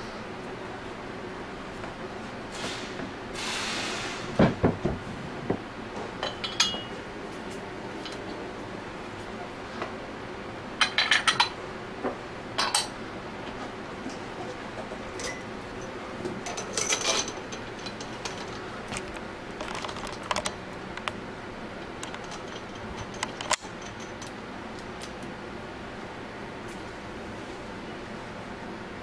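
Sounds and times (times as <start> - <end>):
metal parts clinking: 15.2 - 18.6, 22.0 - 24.3.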